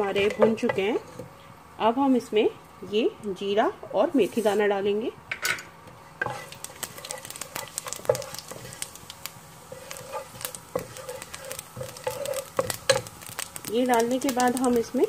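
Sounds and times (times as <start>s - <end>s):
wooden spatula scraping pot: 0.0s - 1.3s, 6.0s - 9.0s, 9.6s - 14.9s
seeds crackling in hot oil: 0.0s - 15.0s.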